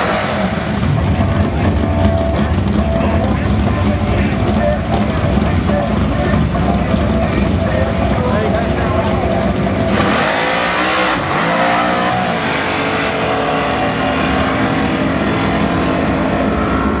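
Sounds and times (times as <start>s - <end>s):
drag car engine accelerating: 0.0s - 17.0s.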